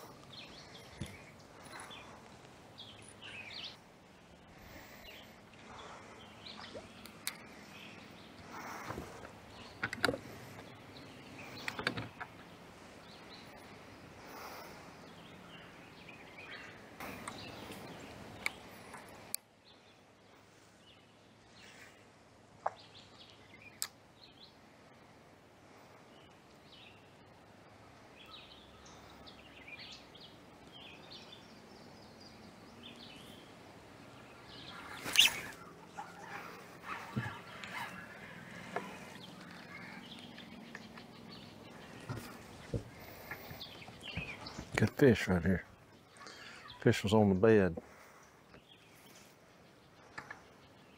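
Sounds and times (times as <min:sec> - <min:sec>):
birds chirping: 0:00.0 - 0:50.9.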